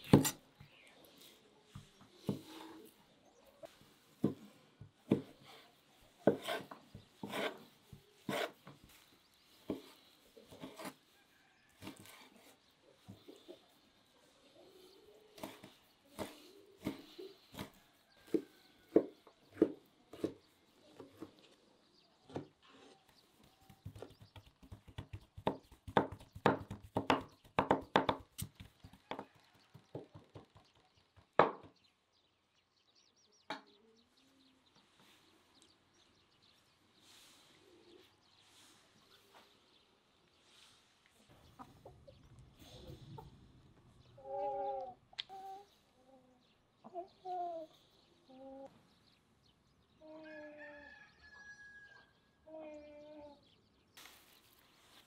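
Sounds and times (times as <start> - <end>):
knife chopping on wooden board: 6.2 - 7.6, 23.8 - 29.2.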